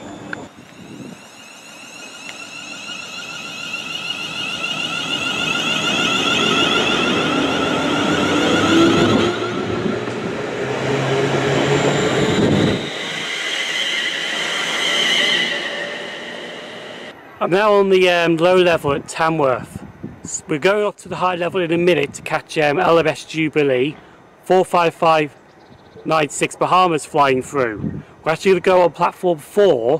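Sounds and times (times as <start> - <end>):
electric train motors whining: 0.0 - 17.2.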